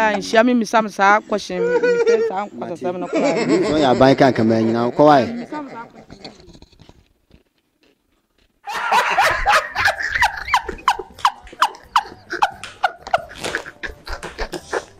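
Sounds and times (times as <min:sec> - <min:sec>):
woman laughing hard: 0:01.5 - 0:02.5, 0:04.8 - 0:06.9, 0:08.7 - 0:14.9.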